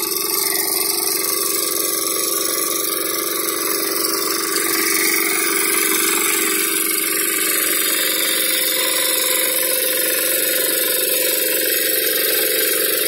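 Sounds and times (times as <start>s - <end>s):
rotary tiller cutting soil: 0.0s - 13.0s
walk-behind tractor engine running: 0.0s - 13.0s.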